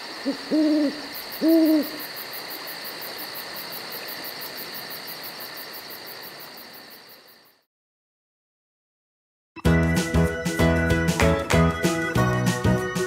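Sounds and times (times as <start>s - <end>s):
crickets chirping: 0.0s - 7.7s.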